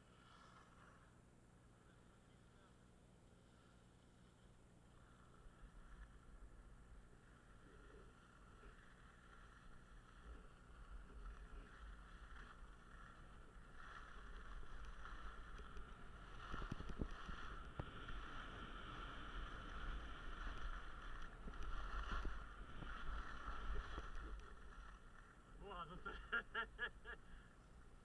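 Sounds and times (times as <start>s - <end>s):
skis scraping over packed snow: 0.0s - 28.0s
wind rumbling on microphone: 8.6s - 25.6s.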